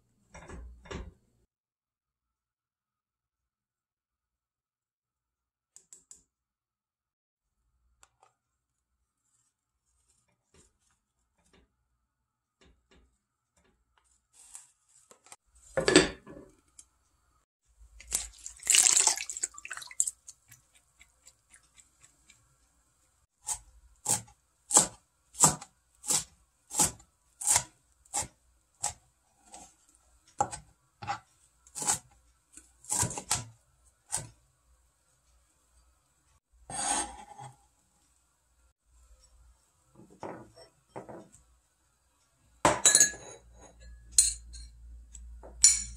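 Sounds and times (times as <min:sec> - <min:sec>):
knife chopping on cutting board: 0:23.4 - 0:29.7, 0:31.8 - 0:32.1, 0:32.8 - 0:34.3.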